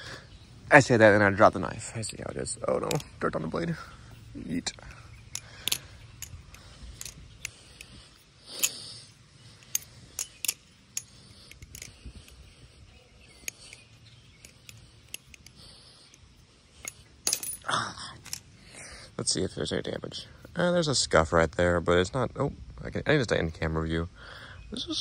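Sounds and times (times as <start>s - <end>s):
sharp metallic clicks: 2.1s - 3.4s, 4.6s - 12.5s, 13.4s - 17.6s
metallic rattle: 4.6s - 12.5s, 13.4s - 16.2s, 16.8s - 18.5s.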